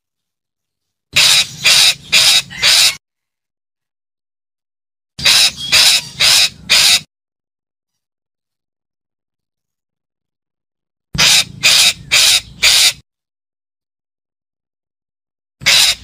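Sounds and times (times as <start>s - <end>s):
parakeet calling loudly: 1.2s - 3.0s, 5.2s - 7.1s, 11.2s - 13.0s, 15.6s - 16.0s.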